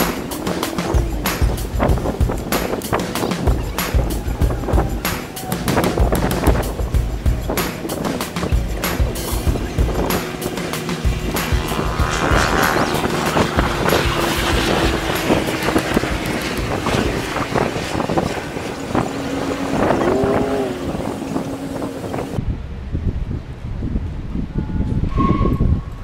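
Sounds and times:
rising and falling pitched sound: 0:00.0 - 0:22.4
wind buffeting microphone: 0:00.0 - 0:26.0
steady low hum: 0:06.0 - 0:22.4.

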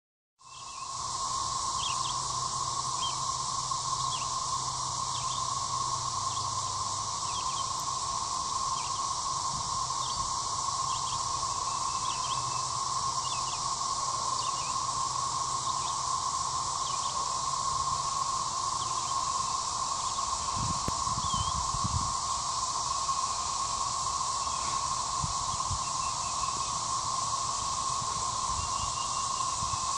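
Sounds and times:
cicadas droning: 0:00.4 - 0:29.9
bird chirps: 0:10.9 - 0:13.6, 0:28.6 - 0:29.8.

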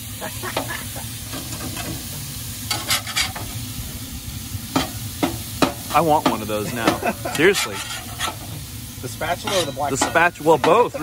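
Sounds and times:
meat sizzling on a griddle: 0:00.0 - 0:11.0
metal spatula scraping and tapping: 0:02.7 - 0:03.5, 0:04.7 - 0:08.5, 0:09.4 - 0:10.8.

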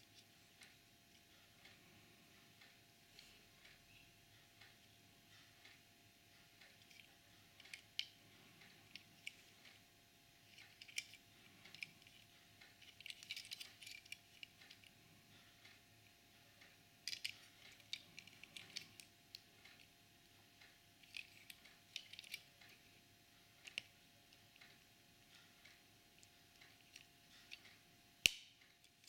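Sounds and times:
faint steady hum: 0:00.0 - 0:29.0
toy car clicks and taps: 0:10.5 - 0:12.2.

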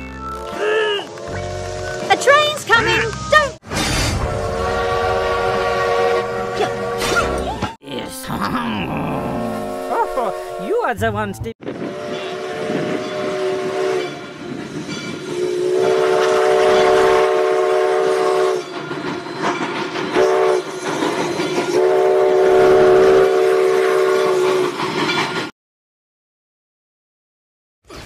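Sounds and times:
train running noise: 0:01.0 - 0:07.8, 0:09.6 - 0:25.5
steam locomotive whistle: 0:04.2 - 0:07.6, 0:09.5 - 0:10.9, 0:11.8 - 0:14.5, 0:15.3 - 0:18.8, 0:20.1 - 0:20.7, 0:21.7 - 0:24.8.

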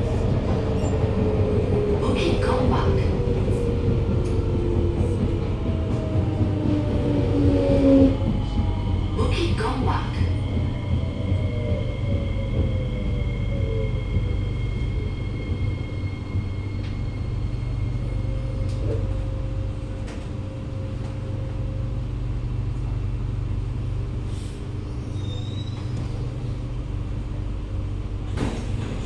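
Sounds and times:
train low rumble: 0:00.0 - 0:29.0.

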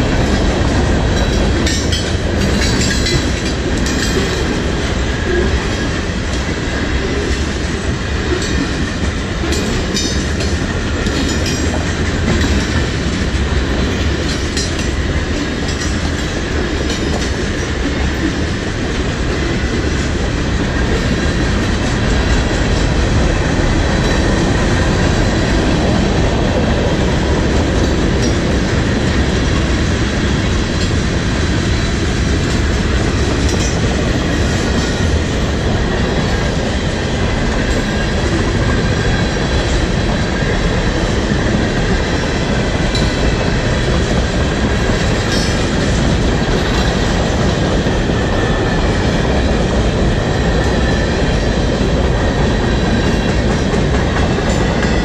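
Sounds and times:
steel wheels clattering over rail joints: 0:00.0 - 0:55.0.

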